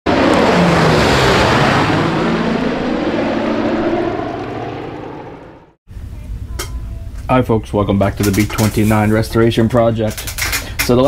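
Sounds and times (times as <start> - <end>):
propeller aircraft flying past: 0.1 - 5.8.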